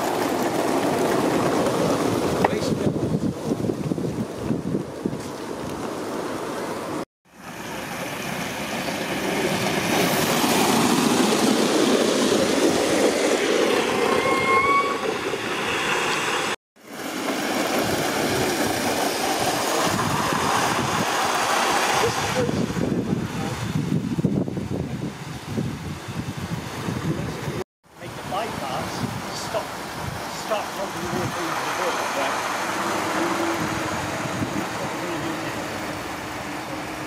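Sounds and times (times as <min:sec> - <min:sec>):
model locomotive wheel noise: 0:00.0 - 0:25.3, 0:26.2 - 0:37.0
steam hissing: 0:07.4 - 0:23.8, 0:28.1 - 0:37.0
short rising tone: 0:10.0 - 0:16.6.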